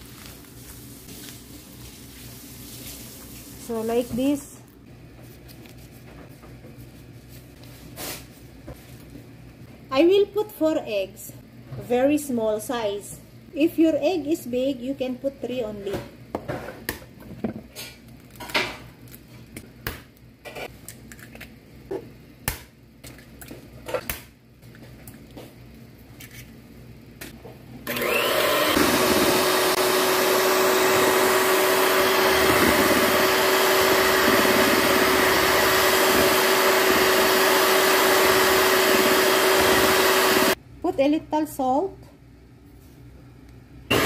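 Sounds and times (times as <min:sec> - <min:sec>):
electric hand mixer humming: 0:27.8 - 0:40.6.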